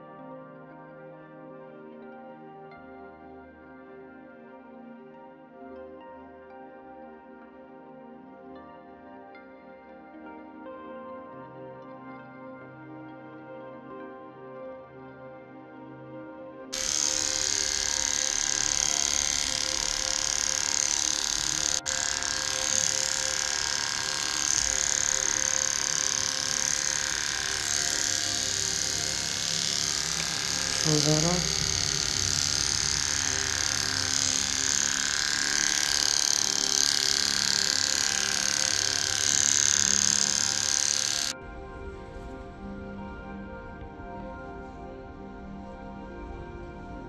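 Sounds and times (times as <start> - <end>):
soft music: 0.0 - 47.0
electric clipper buzzing: 16.7 - 41.4.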